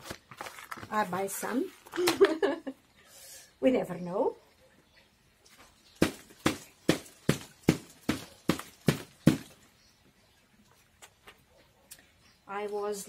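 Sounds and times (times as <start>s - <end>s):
flower pot knocking: 6.0s - 9.6s.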